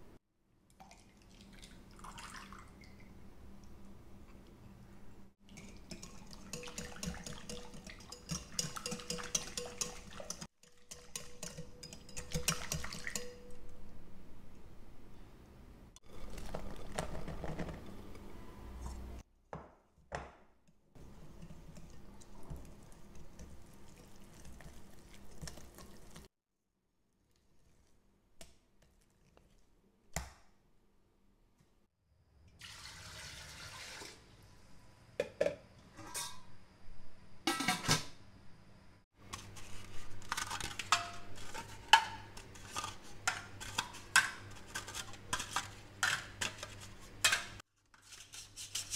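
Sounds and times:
stirring batter in glass bowl: 5.5 - 13.6, 20.9 - 26.3
water pouring into metal wok: 32.6 - 34.3.

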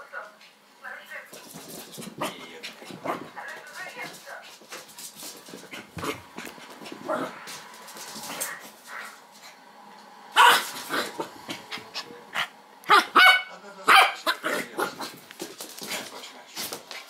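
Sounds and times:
dog barking: 10.4 - 10.8, 12.9 - 14.6.

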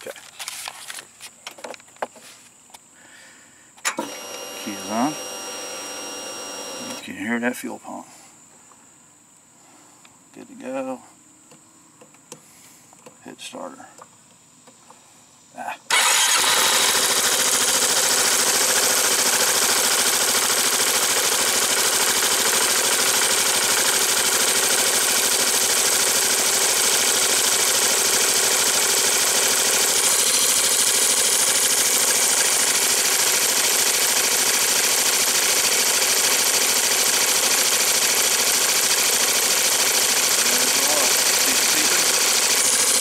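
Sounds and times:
scooter engine idling: 4.1 - 7.0, 15.9 - 43.0.

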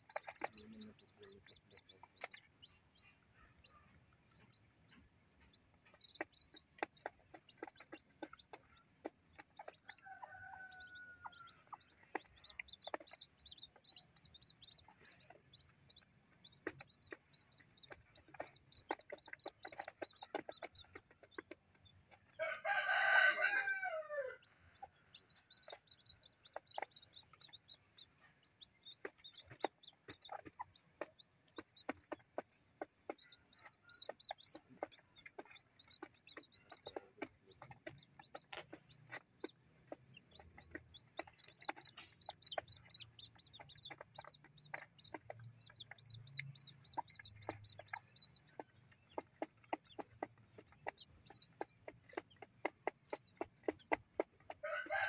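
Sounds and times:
chicks peeping: 0.0 - 55.0
rooster crowing: 10.2 - 11.5, 22.4 - 24.4, 54.6 - 55.0.

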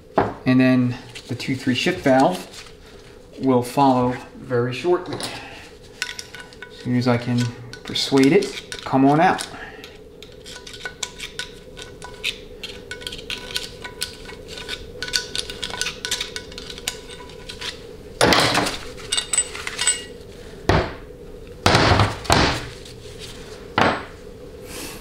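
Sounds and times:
steady hum: 0.0 - 25.0
steel pick clicking and scraping: 6.0 - 17.8.

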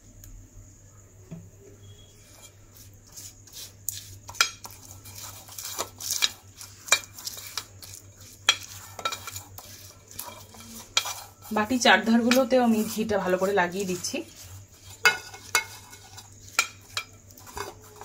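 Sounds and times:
pastry brush scraping paper: 1.9 - 18.0.

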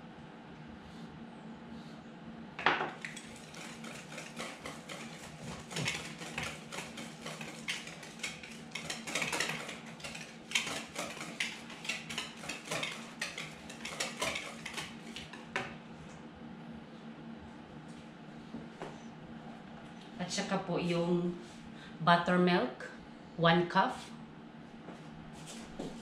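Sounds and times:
utensil scraping a mixing bowl: 2.9 - 15.7.

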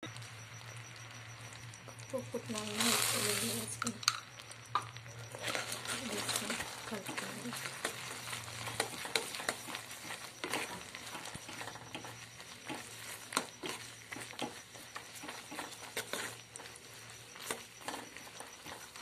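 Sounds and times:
spoon scraping metal pan: 5.2 - 19.0.

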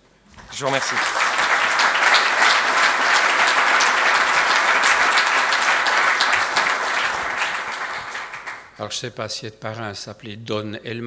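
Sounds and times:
audience applauding: 0.3 - 8.8.

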